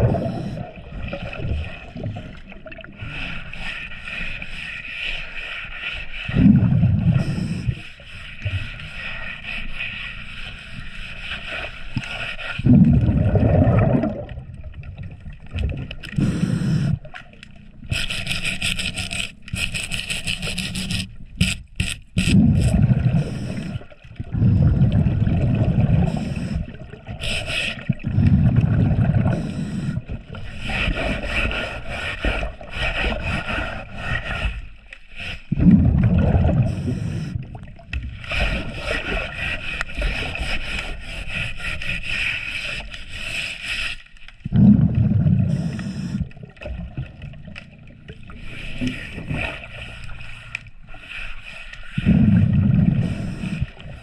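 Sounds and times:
gurgling exhaled bubbles: 0.0s - 3.4s, 6.3s - 7.8s, 12.6s - 21.0s, 22.2s - 31.6s, 35.5s - 39.4s, 44.4s - 49.8s, 52.0s - 54.0s
scraping growth off hull underwater: 0.0s - 54.0s.

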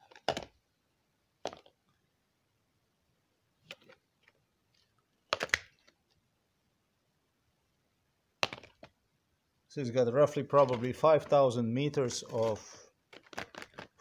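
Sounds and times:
plastic packs clicking and clacking: 0.0s - 0.6s, 1.4s - 1.8s, 12.2s - 14.0s.

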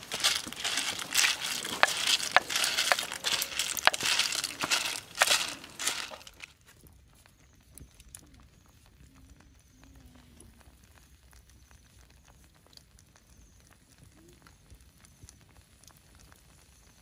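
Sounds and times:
clam shells clattering in a wok: 0.0s - 6.5s
faint crackle: 0.0s - 17.0s.

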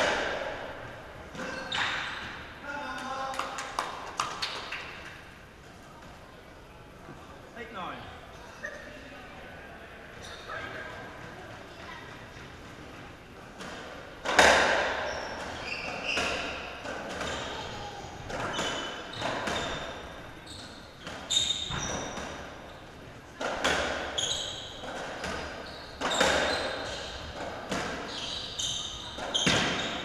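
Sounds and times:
court shoes squeaking: 0.0s - 2.6s, 10.2s - 30.0s.

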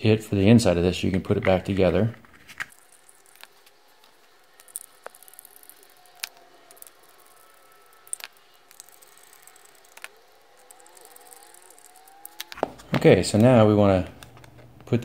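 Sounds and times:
screwdriver clicks: 2.7s - 12.7s
screws squeaking in plastic: 2.7s - 13.0s.

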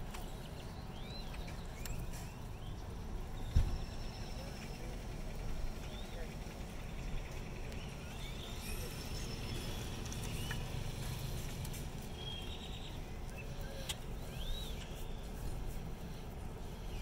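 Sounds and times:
birds whistling calls: 7.3s - 11.4s, 12.0s - 15.6s.

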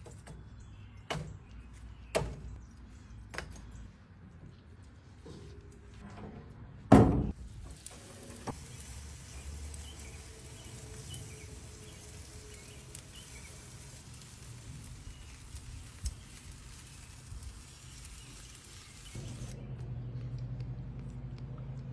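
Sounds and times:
heavy thump: 6.9s - 7.4s.

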